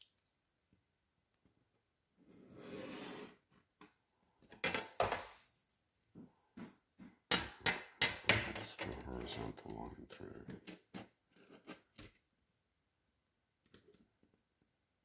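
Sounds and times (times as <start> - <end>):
metal ruler scraping on table: 2.4 - 3.4.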